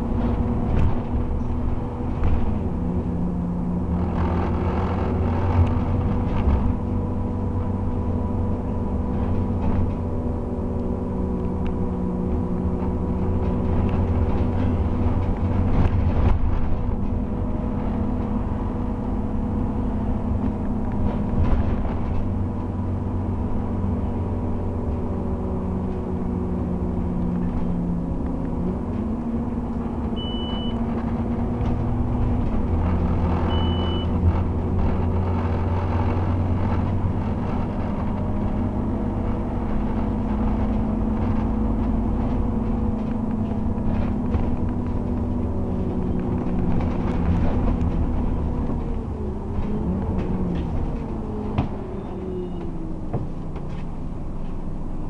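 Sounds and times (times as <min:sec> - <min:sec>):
bus engine rumble: 0:00.0 - 0:55.0
short high beeps: 0:30.2 - 0:30.8.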